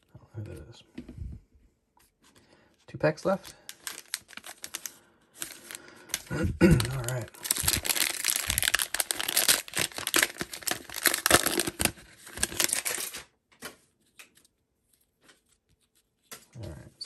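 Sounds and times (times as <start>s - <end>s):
foil wrapper tearing and crinkling: 3.6s - 13.3s.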